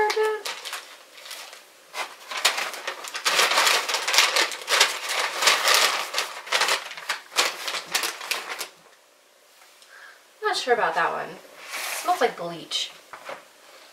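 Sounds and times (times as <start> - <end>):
paper and plastic bags crinkling: 0.0 - 9.0, 13.1 - 13.5.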